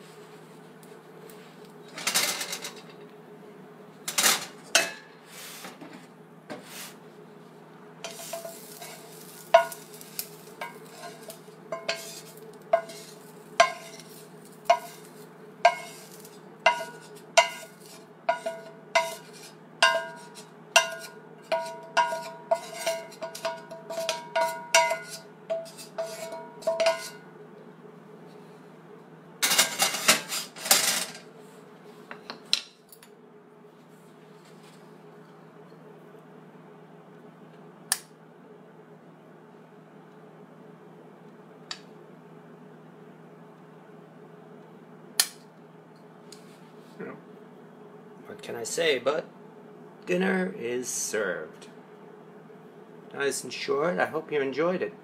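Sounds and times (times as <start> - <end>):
metal utensil scraping cast iron: 8.0 - 27.2.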